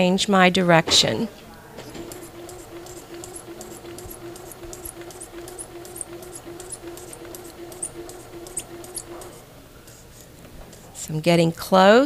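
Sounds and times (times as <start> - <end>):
sewing machine running: 1.8 - 9.5.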